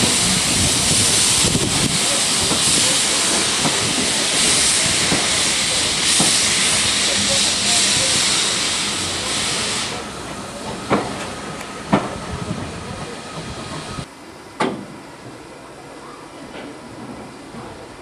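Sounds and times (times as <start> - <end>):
steam locomotive hissing: 0.0 - 14.1.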